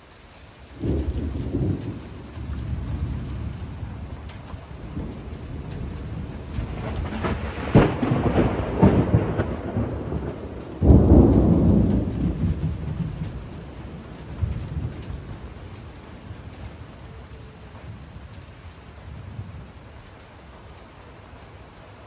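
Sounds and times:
steady rain: 0.0 - 22.0
thunder rumbling: 0.7 - 22.0
sharp thunder crack: 6.6 - 13.3.

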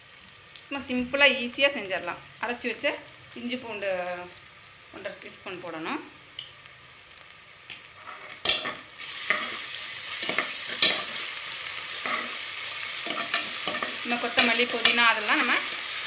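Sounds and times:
onions sizzling in oil: 0.0 - 16.0
spoon scraping a pot: 12.0 - 12.4.

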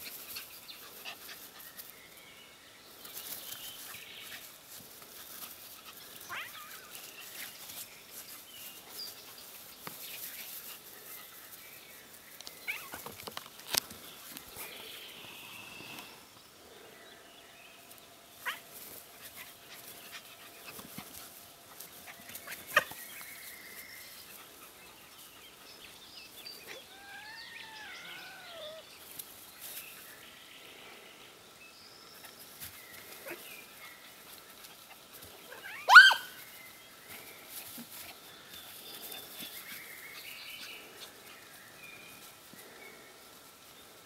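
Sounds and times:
animals playing roughly: 0.0 - 44.0
faint whining cries: 26.6 - 28.9
high-pitched yelp: 26.7 - 28.8, 35.6 - 36.3.

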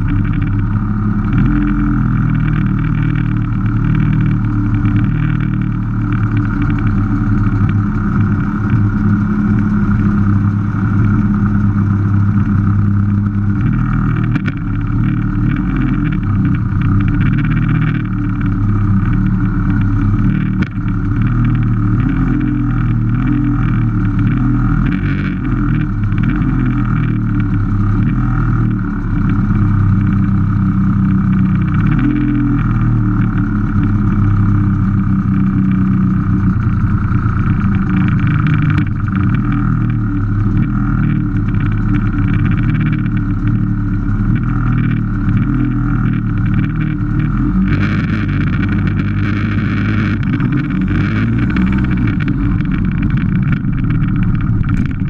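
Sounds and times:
scooters idling: 0.0 - 55.0.

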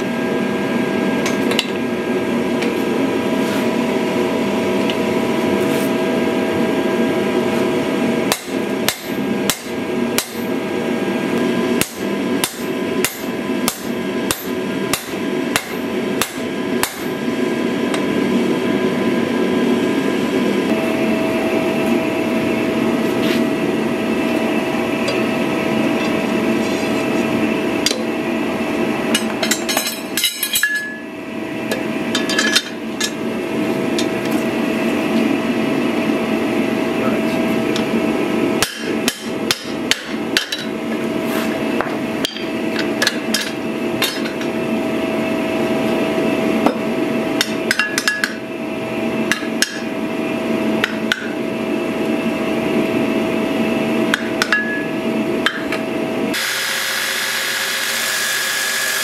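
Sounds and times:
hammer striking steel on anvil: 8.3 - 10.5, 11.8 - 17.2, 38.6 - 40.7.

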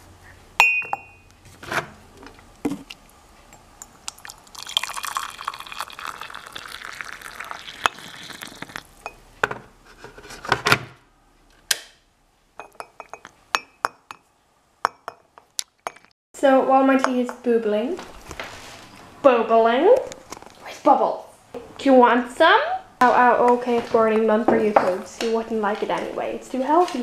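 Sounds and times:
ceramic mug knocks and clinks: 0.6 - 1.2, 12.6 - 14.2
hot water pouring into mug: 4.1 - 9.0.

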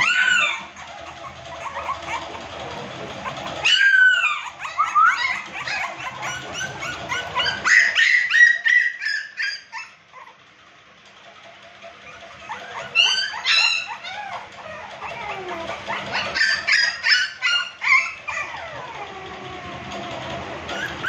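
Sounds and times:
puppies whining and yelping: 0.0 - 10.5, 11.2 - 21.0.

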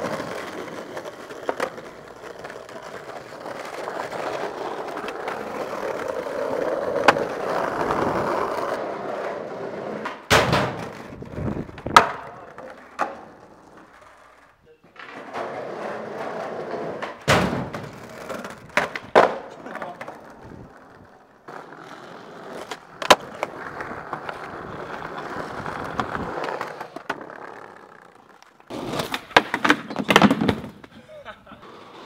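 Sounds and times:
skateboard clacks and knocks: 0.0 - 31.0
skateboard wheels rolling on pavement: 0.0 - 32.0.

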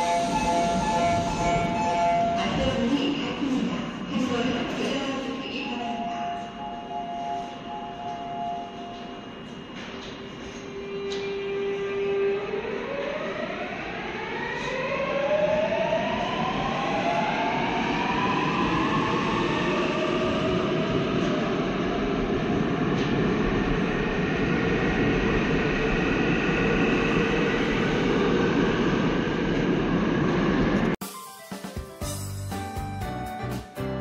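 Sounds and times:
train running rumble: 0.0 - 5.1.

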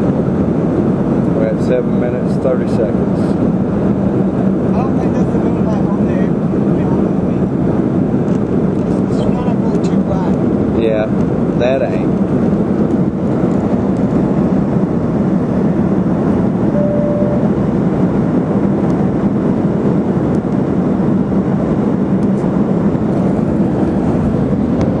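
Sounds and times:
airliner engines and airflow rushing: 0.0 - 25.0
short steady tone: 16.7 - 17.8.

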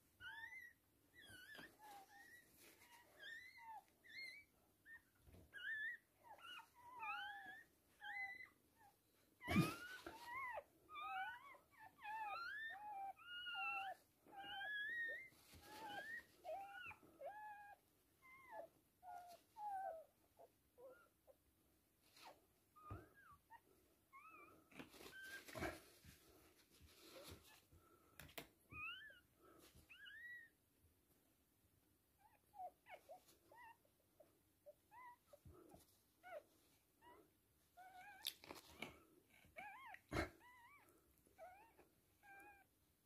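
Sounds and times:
puppy crying in high squeaks: 0.2 - 20.1, 28.7 - 29.3, 29.9 - 30.6, 39.6 - 42.7.

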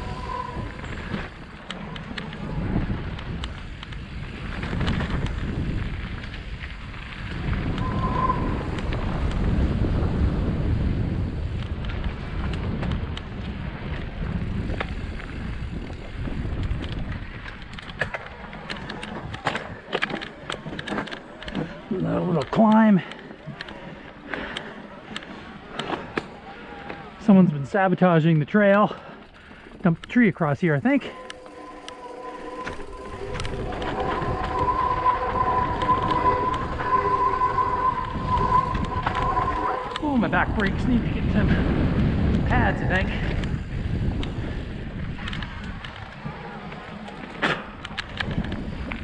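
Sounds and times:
bike disc brake squealing: 0.0 - 2.6, 7.7 - 9.4, 29.6 - 41.6
bike clicks and rattles: 0.0 - 8.0, 8.6 - 27.6, 28.2 - 35.0, 40.6 - 49.0
wind buffeting microphone: 0.0 - 26.5, 29.1 - 49.0.

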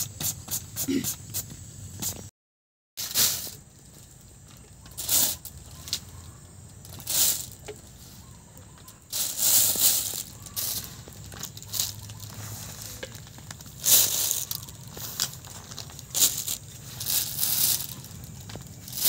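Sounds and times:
plastic bag crinkling: 9.0 - 19.0.

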